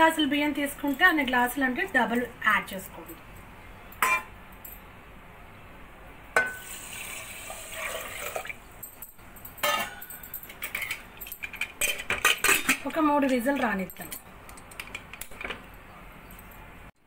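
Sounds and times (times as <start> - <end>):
water pouring into metal pot: 6.6 - 8.6.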